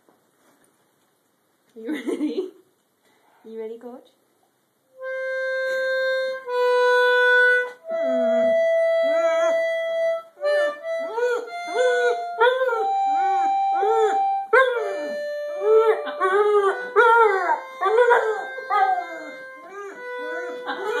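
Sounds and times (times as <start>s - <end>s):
concertina chords: 4.9s - 21.0s
dog howling: 11.1s - 21.0s.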